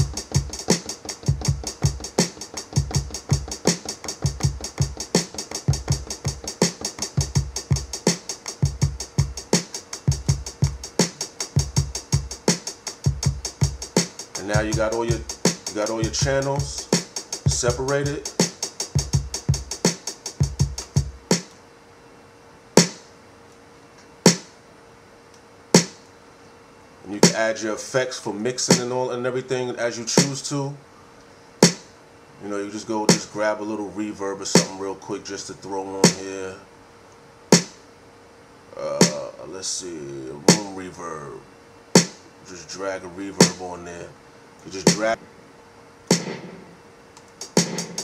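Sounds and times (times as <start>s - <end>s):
kick drums dropping in pitch: 0.0s - 21.4s, 46.1s - 46.8s, 47.4s - 48.0s
closed hi-hat ticking: 0.0s - 21.6s, 33.1s - 33.4s, 34.5s - 34.8s, 36.0s - 36.4s, 37.5s - 37.8s, 38.8s - 39.4s, 40.0s - 40.9s, 44.6s - 45.2s, 47.1s - 48.0s
snare hit: 22.8s - 23.1s, 24.3s - 24.5s, 25.8s - 26.0s, 31.6s - 31.9s, 37.6s - 37.8s, 39.0s - 39.2s, 42.0s - 42.2s, 46.1s - 46.8s, 47.4s - 48.0s
sharp drum hit: 46.1s - 46.8s, 47.6s - 48.0s.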